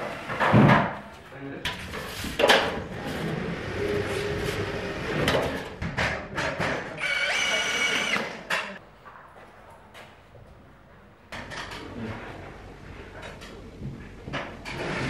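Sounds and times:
cordless drill whining: 7.0s - 8.4s.

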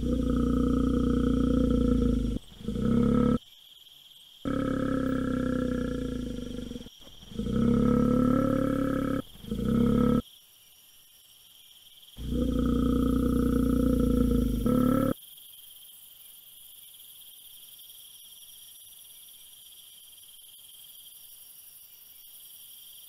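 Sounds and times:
bear growling: 0.0s - 3.4s, 4.5s - 10.2s, 12.2s - 15.2s.

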